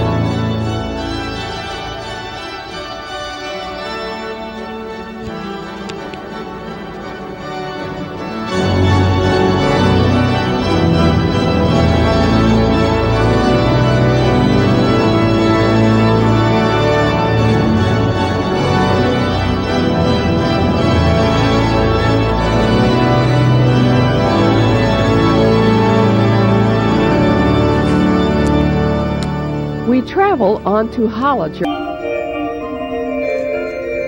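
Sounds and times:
pipe organ chords: 0.0 - 34.0.

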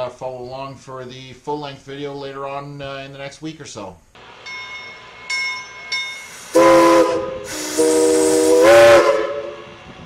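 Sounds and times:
steam hissing: 4.2 - 10.0
locomotive bell ringing: 4.3 - 7.2
steam whistle: 6.2 - 9.9.

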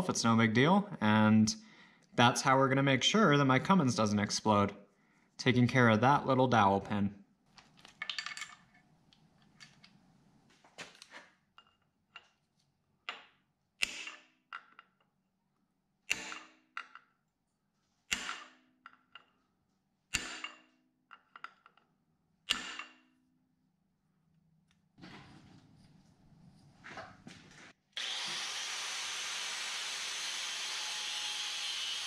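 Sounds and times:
hammer striking steel punch: 16.1 - 16.6.

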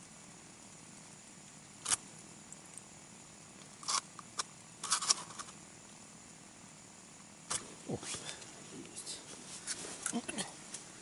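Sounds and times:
faint steady hiss: 0.0 - 11.0
scratchy handling rustles: 9.2 - 10.8.

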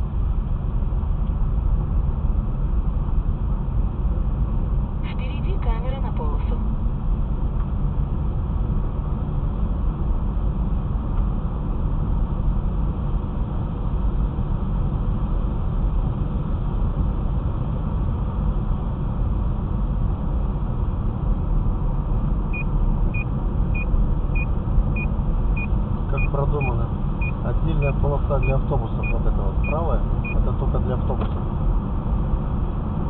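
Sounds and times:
car engine: 0.0 - 33.0.

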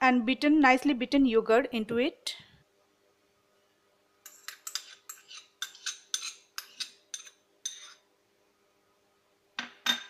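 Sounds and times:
metal spoon scraping bowls: 4.3 - 8.0.

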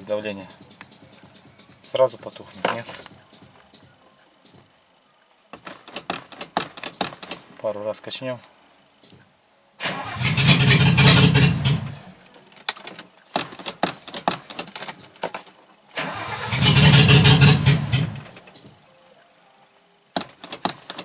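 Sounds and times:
sharp clicks: 0.5 - 4.6
starter motor cranking engine: 9.8 - 12.0, 16.0 - 18.2.

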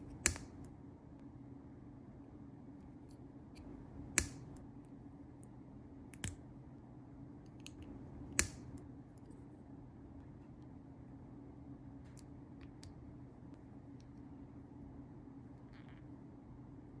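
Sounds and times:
plastic bricks snapping together: 8.4 - 8.7.

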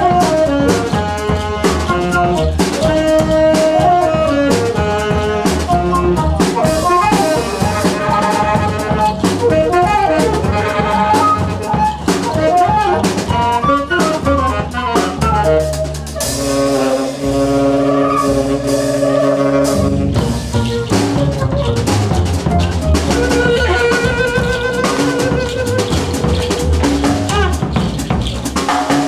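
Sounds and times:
jazz band playing: 0.0 - 29.0.

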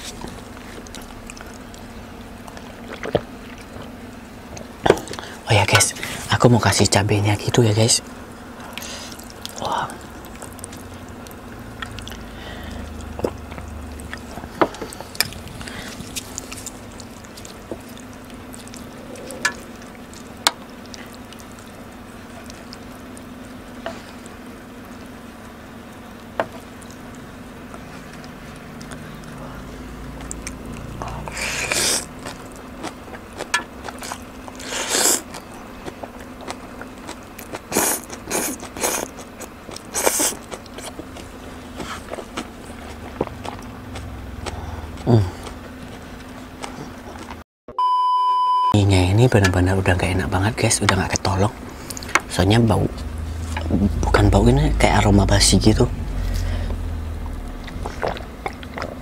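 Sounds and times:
faint steady hum: 0.0 - 59.0
slurping noodles: 31.0 - 32.4, 33.9 - 35.4, 37.6 - 43.7.

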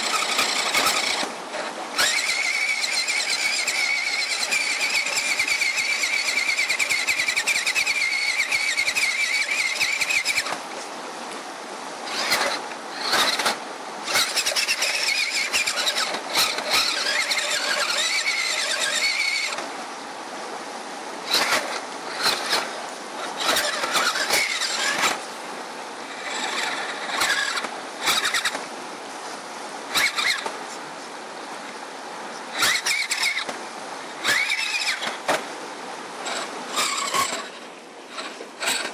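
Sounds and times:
electric motor whining: 0.0 - 10.6, 12.0 - 19.7, 21.3 - 25.3, 26.1 - 28.6, 29.9 - 30.5, 32.6 - 33.6, 34.2 - 35.4, 36.2 - 37.5, 38.1 - 38.9.

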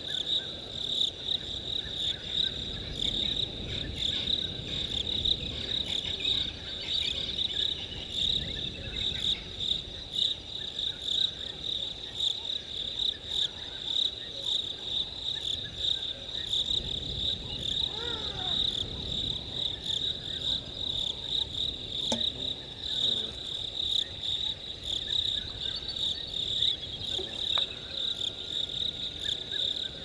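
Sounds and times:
night insects chirring: 0.0 - 30.0
animal call: 17.8 - 18.8.

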